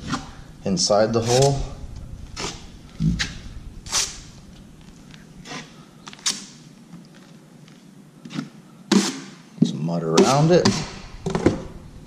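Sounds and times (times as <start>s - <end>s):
taping knife scraping on wall: 2.4s - 4.3s, 5.4s - 6.5s.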